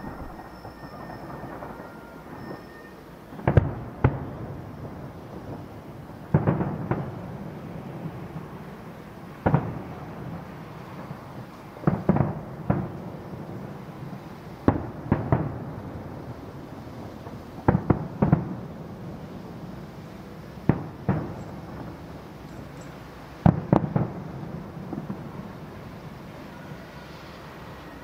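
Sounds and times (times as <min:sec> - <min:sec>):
firework shells bursting: 0:00.0 - 0:04.4.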